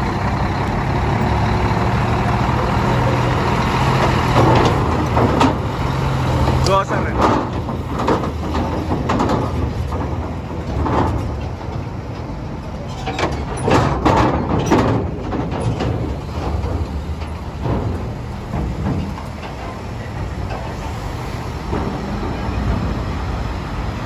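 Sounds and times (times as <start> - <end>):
truck diesel engine running: 0.0 - 24.0
metal clanks and rattles: 1.1 - 24.0.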